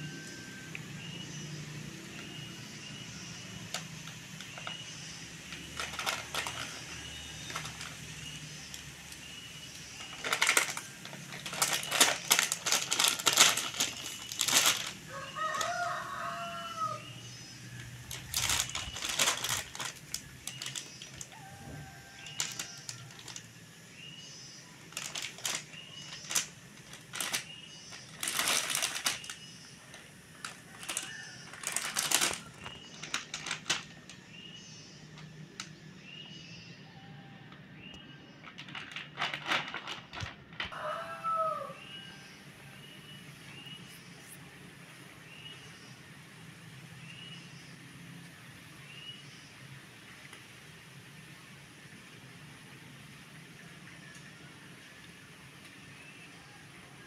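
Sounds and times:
foil-plastic packet crinkling: 3.6s - 16.3s, 17.8s - 23.5s, 24.8s - 34.2s, 38.4s - 40.8s.

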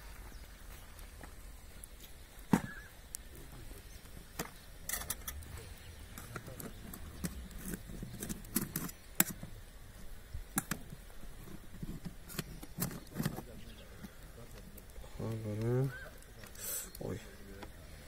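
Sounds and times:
clicks and light knocks: 11.8s - 17.8s.

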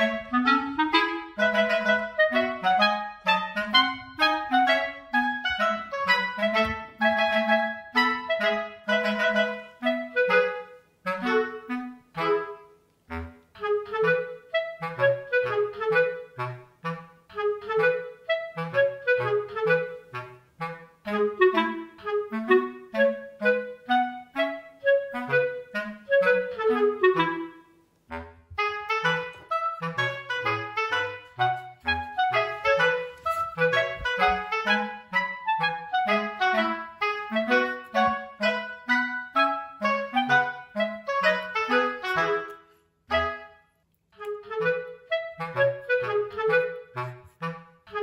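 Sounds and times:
bouncy staccato tune: 0.0s - 9.4s, 28.1s - 38.6s.

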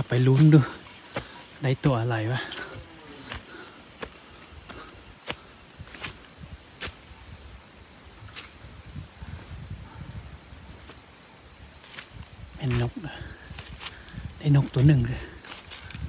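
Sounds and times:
high insect buzz: 0.0s - 16.0s
footsteps on dry leaves: 11.8s - 16.0s.

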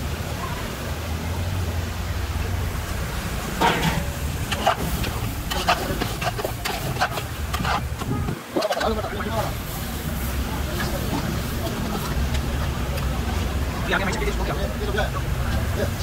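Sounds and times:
ladle scraping metal pot: 3.6s - 9.6s.

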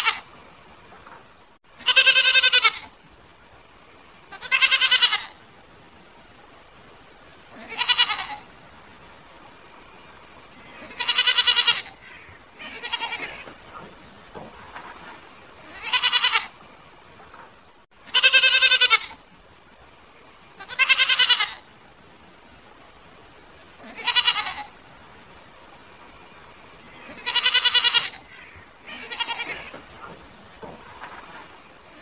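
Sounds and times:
goat bleating: 0.0s - 0.2s, 1.8s - 2.9s, 4.3s - 5.4s, 7.6s - 8.4s, 10.8s - 13.6s, 15.6s - 16.5s, 18.1s - 19.2s, 20.6s - 21.6s, 23.8s - 24.7s, 27.0s - 30.0s.

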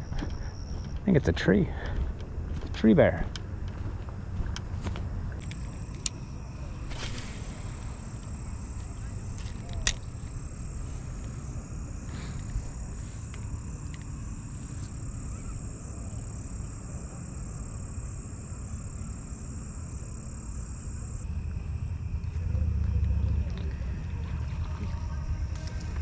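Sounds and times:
high-pitched insect drone: 5.4s - 22.4s.

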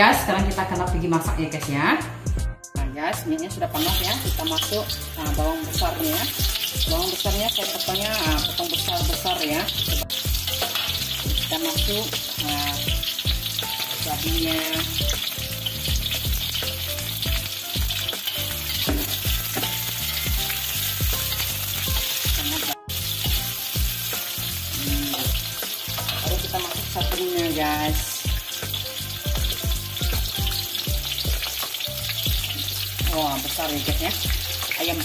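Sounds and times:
vegetables sizzling in hot oil: 3.4s - 35.0s
metal spatula scraping a wok: 6.0s - 12.8s, 18.2s - 26.6s.

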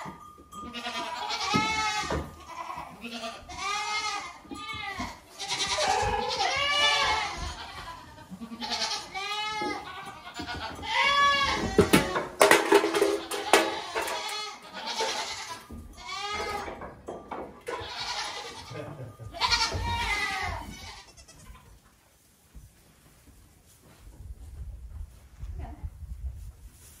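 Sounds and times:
goat kids bleating: 0.0s - 16.9s, 17.5s - 21.8s
knocks and clatter: 10.4s - 18.2s.

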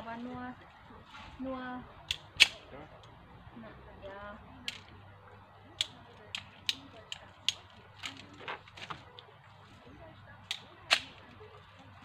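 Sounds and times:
pole pruner snipping branches: 10.5s - 11.3s.

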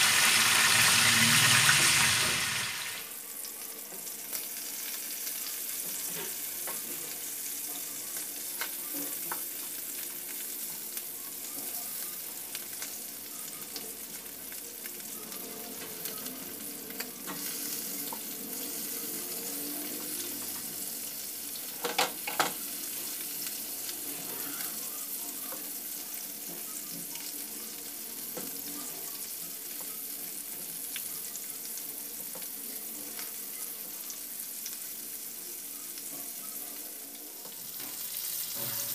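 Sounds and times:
fish sizzling in oil: 0.0s - 38.9s.

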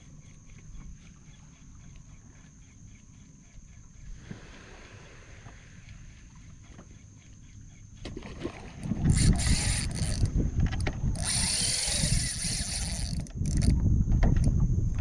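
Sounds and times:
fishing reel whirring: 8.8s - 13.8s.

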